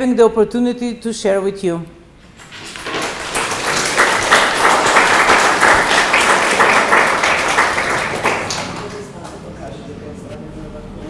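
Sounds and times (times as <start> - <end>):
audience clapping: 2.4 - 9.6.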